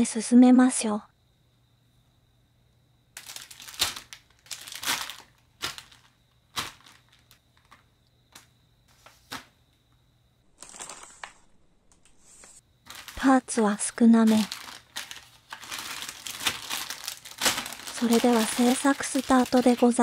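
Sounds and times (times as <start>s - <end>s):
plastic bags crinkling: 3.2s - 8.5s, 10.5s - 20.0s.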